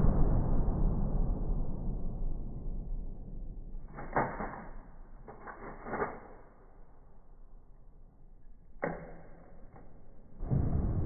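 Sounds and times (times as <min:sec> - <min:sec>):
shotgun pump racking clacks: 0:03.9 - 0:06.8.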